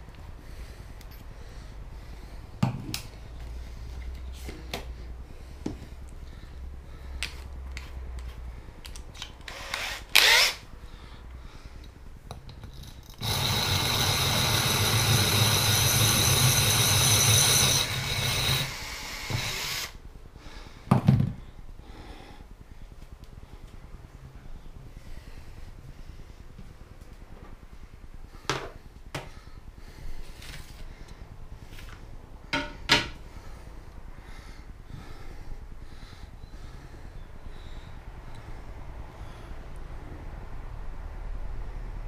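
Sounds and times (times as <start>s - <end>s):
drill boring into glass: 9.5s - 10.6s, 13.1s - 20.0s.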